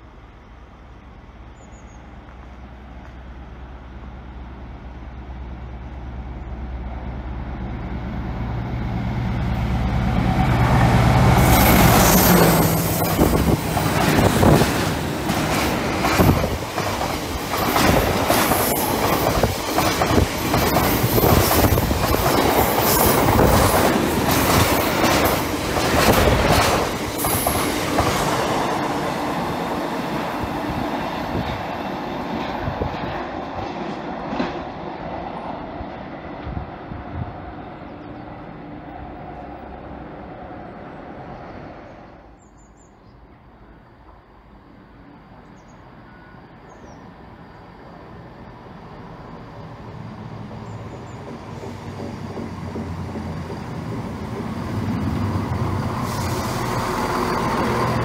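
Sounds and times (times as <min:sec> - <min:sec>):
diesel locomotive engine passing: 0:00.0 - 0:58.0
train wheels clickety-clack: 0:11.4 - 0:28.6, 0:31.4 - 0:34.9, 0:50.7 - 0:58.0.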